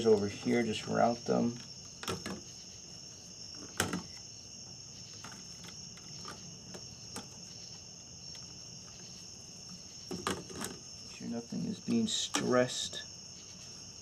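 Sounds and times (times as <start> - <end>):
crickets trilling: 0.0 - 14.0.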